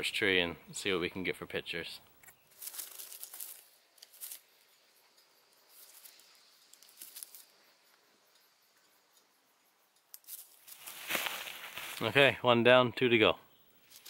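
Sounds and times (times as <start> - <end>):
footsteps through dry leaves: 2.5 - 4.4, 10.3 - 12.2
camera strap handling rustle: 2.5 - 4.5, 5.8 - 7.5.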